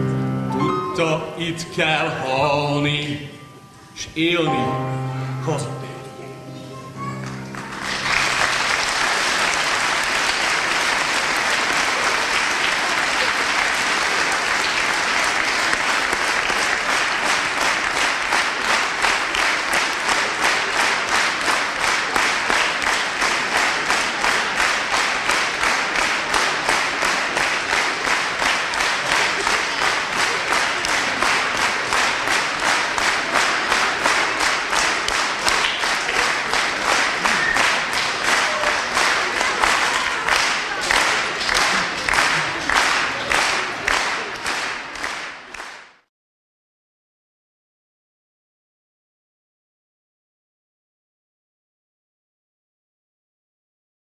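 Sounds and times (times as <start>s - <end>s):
audience applauding: 7.0s - 46.0s
rhythmic clapping: 7.0s - 46.1s.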